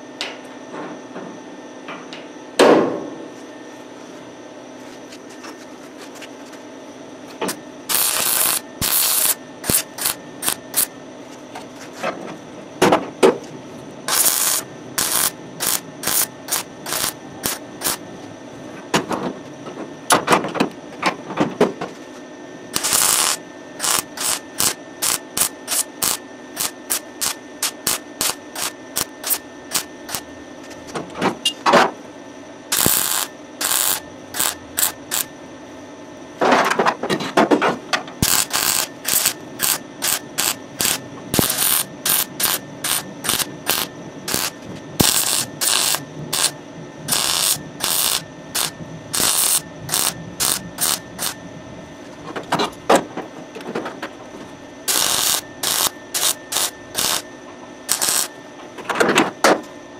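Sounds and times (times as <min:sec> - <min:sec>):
welding arc bursts: 0:07.9 - 0:10.9, 0:14.1 - 0:18.0, 0:22.8 - 0:30.2, 0:32.7 - 0:35.3, 0:38.2 - 0:46.5, 0:47.1 - 0:51.4, 0:54.9 - 0:57.2, 0:57.9 - 0:58.3.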